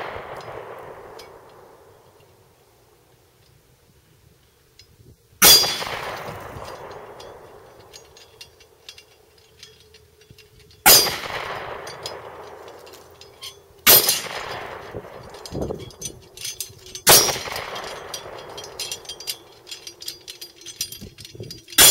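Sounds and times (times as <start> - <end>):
metal plates rattling: 5.4 - 21.9
steel plate clanging and ringing: 5.4 - 21.9.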